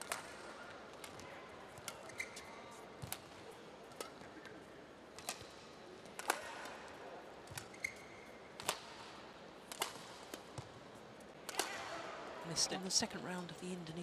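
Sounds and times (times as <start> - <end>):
shoe squeak on court: 1.9 - 2.9, 7.6 - 8.4
racquet striking shuttlecock: 3.0 - 4.6, 5.2 - 10.7, 11.4 - 12.1.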